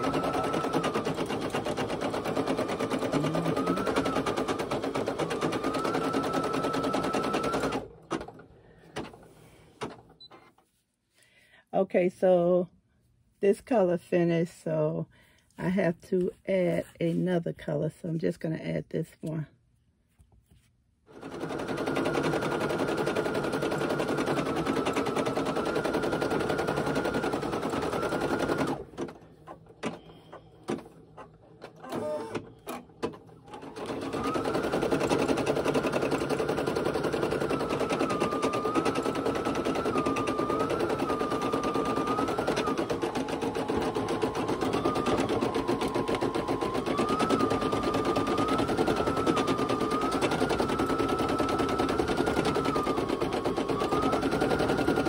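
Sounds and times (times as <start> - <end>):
embroidery machine stitching: 0.0 - 9.2, 21.1 - 55.0.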